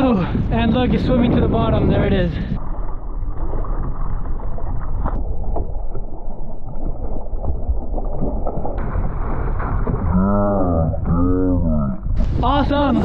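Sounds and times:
wind buffeting microphone: 0.0 - 5.9, 7.4 - 13.0
water splashing against kayak: 0.4 - 11.2, 12.0 - 13.0
ray thrashing in water: 2.6 - 11.0.

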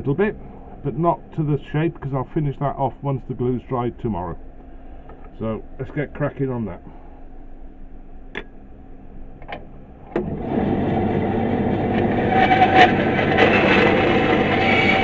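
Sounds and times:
bandsaw cutting wood: 10.2 - 15.0.

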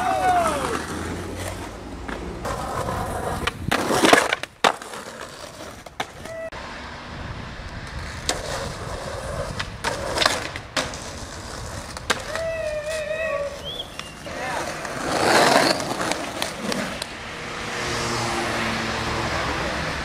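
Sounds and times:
skateboard wheels rolling on asphalt: 0.0 - 20.0
skateboard scrapes and clacks: 0.5 - 6.5, 7.8 - 17.1.

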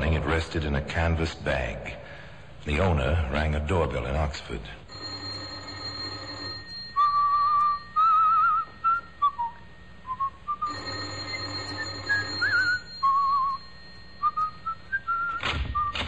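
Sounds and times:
electric doorbell buzzing: 4.9 - 9.1, 10.7 - 15.0
man whistling a tune: 7.0 - 10.7, 12.4 - 16.0.

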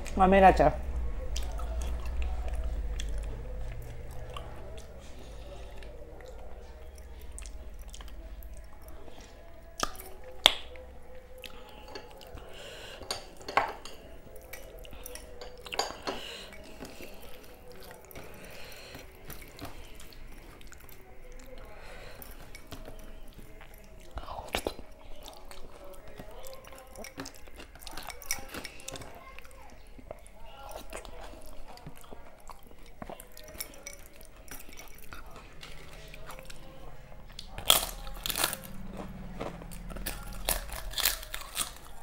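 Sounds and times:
low hum: 0.0 - 9.4
chewing: 1.0 - 42.0.

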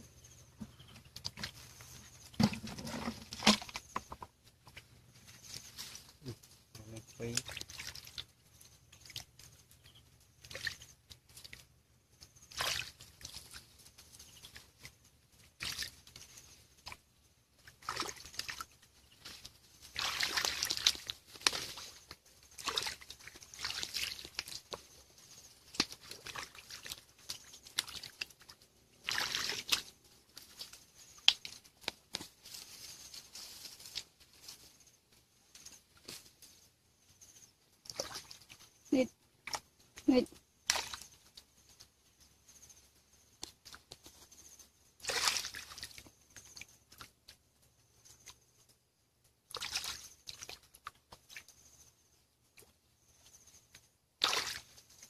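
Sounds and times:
hands splashing in shallow water: 7.3 - 8.3, 10.4 - 11.6, 12.5 - 13.6, 15.6 - 16.2, 17.6 - 24.8, 25.6 - 32.4, 37.8 - 38.6, 40.6 - 41.2, 45.0 - 47.1, 49.5 - 51.5, 54.2 - 54.8.

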